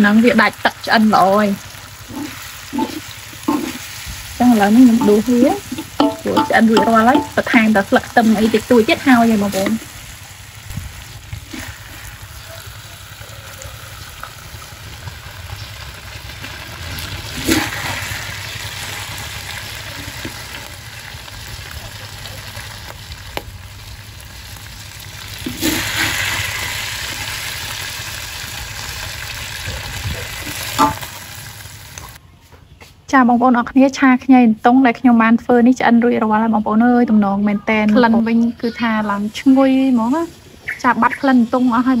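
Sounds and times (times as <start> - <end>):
food sizzling in wok: 0.0 - 32.2, 38.6 - 42.0
metal spatula scraping wok: 2.0 - 9.9, 25.4 - 27.3
spatula clinking: 2.1 - 8.4.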